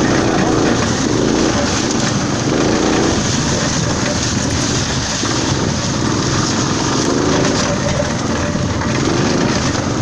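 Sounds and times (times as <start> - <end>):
golf cart driving: 0.0 - 10.0.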